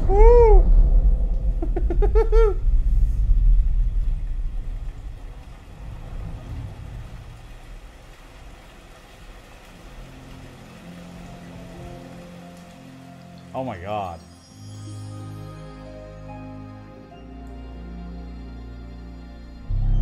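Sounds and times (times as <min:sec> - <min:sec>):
deep bass rumble: 0:00.0 - 0:07.6.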